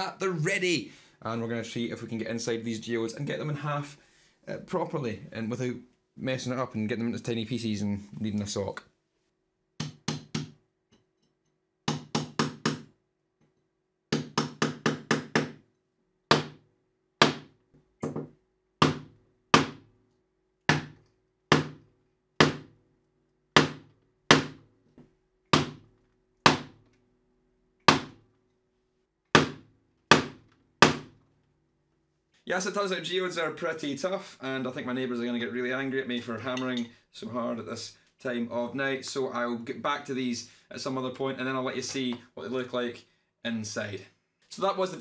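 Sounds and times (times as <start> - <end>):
hammer striking a chisel: 9.8 - 11.0, 11.9 - 12.9, 14.1 - 15.6, 16.3 - 16.6, 17.2 - 19.8, 20.7 - 21.8, 23.6 - 24.6, 25.5 - 25.8, 29.4 - 31.2, 36.5 - 36.9.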